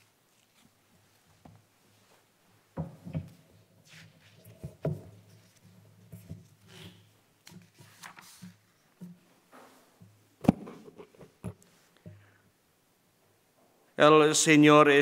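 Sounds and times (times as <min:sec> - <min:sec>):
book pages rustling: 0:00.0 - 0:02.1, 0:03.9 - 0:09.2.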